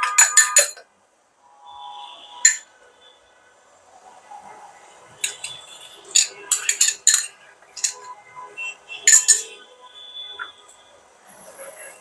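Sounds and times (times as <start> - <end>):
utensil clinking against bowl: 0.0 - 0.8, 2.4 - 2.6, 5.2 - 5.6, 6.2 - 8.1, 9.1 - 9.6.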